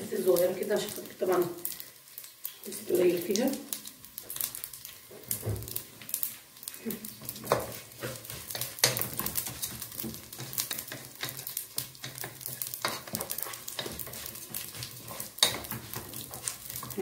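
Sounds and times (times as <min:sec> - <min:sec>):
food sizzling in oil: 0:00.0 - 0:17.0
wooden spatula scraping a pot: 0:07.3 - 0:17.0.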